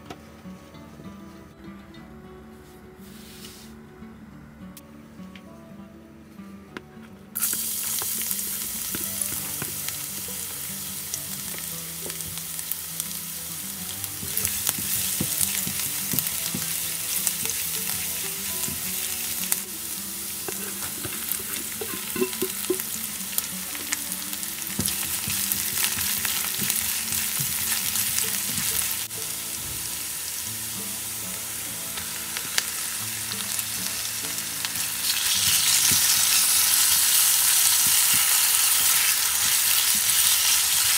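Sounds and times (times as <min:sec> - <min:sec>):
food sizzling in hot oil: 0:07.4 - 0:40.9
spatula scraping and tapping: 0:20.5 - 0:23.0.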